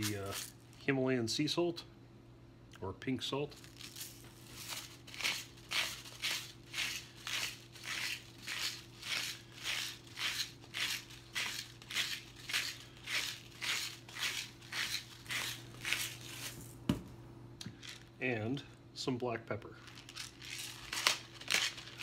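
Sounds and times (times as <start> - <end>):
salt grinder crunching crystals: 0.0 - 0.6, 3.6 - 16.6, 19.8 - 22.0.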